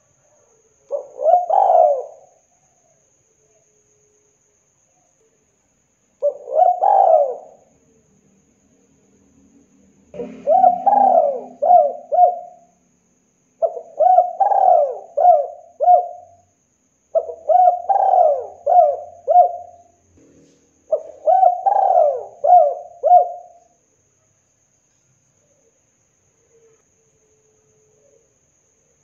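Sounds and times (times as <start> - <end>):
dove cooing: 0.9 - 2.4, 6.2 - 7.7, 10.1 - 12.8, 13.6 - 16.4, 17.2 - 19.9, 20.9 - 23.7.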